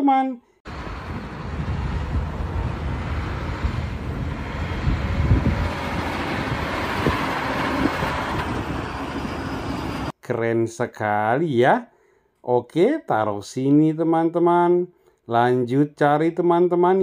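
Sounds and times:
truck engine rumble: 0:00.7 - 0:10.1
wind buffeting microphone: 0:00.7 - 0:10.1.

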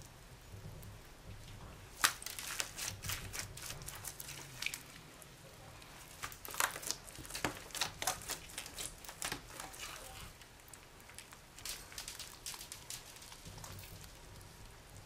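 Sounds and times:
slime squelching with wet clicks: 0:06.2 - 0:13.4.

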